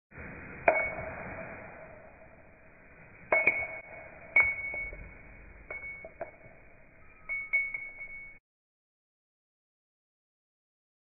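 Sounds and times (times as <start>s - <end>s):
metal cylinder clinking on wood floor: 3.3s - 8.4s.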